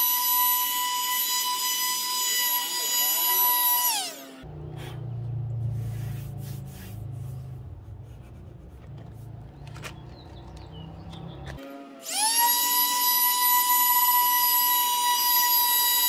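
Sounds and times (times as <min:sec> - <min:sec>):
low steady rumble: 0:04.5 - 0:11.5
hand rubbing plastic: 0:05.6 - 0:10.7.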